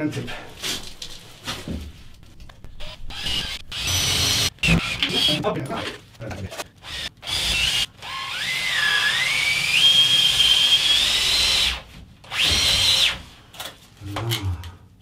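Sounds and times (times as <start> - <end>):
cordless drill motor whine: 2.8 - 5.0.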